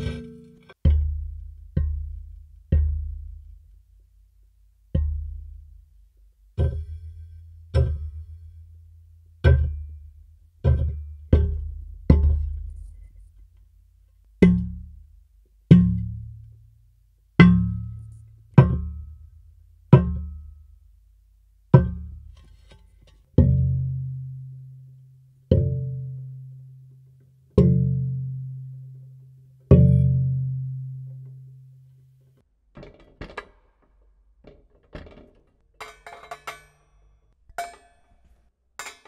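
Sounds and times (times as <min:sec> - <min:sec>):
mallet striking metal chair: 0:00.0 - 0:03.3, 0:07.7 - 0:08.3, 0:35.8 - 0:37.0, 0:37.6 - 0:38.2, 0:38.8 - 0:39.0.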